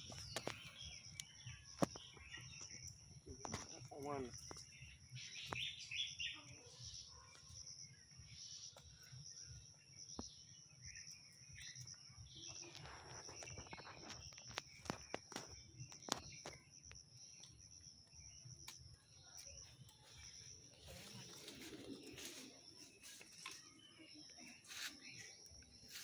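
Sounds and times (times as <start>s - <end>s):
bird chirps: 0.0s - 26.0s
insect drone: 0.0s - 26.0s
dry leaves rustling: 20.0s - 26.0s.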